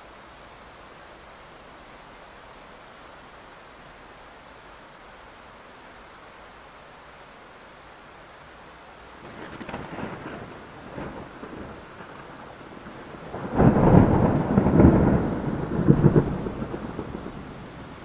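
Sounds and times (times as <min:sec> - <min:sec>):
steady falling rain: 0:00.0 - 0:18.0
thunder rolling: 0:09.2 - 0:18.0.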